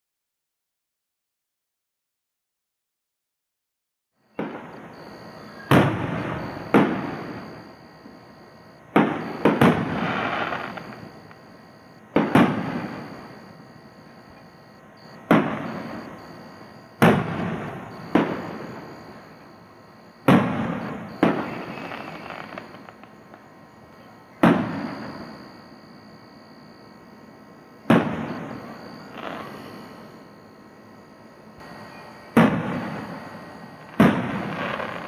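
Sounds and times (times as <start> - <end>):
firework shells bursting: 8.9 - 11.4, 12.1 - 13.4, 15.1 - 19.3, 20.2 - 23.4, 31.6 - 35.0.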